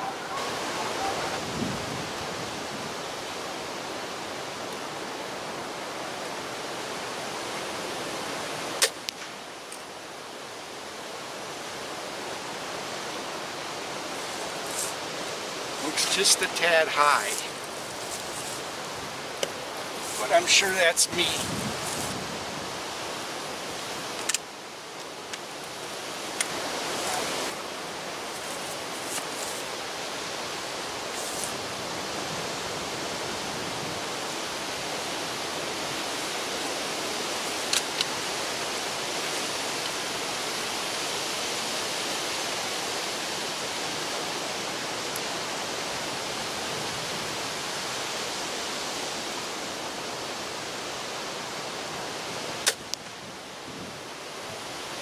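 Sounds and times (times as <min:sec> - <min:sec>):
steady outdoor rushing noise: 0:00.0 - 0:55.0.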